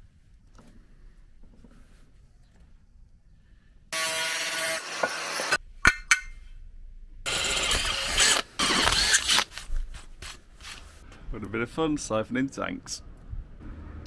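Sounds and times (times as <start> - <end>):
power drill boring metal: 4.0 - 5.6, 7.3 - 9.4.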